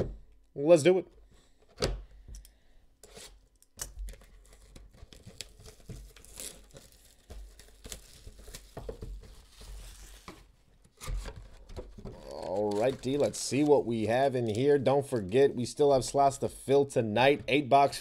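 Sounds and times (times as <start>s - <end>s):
plastic shrink wrap tearing: 4.1s - 8.8s, 12.2s - 13.8s.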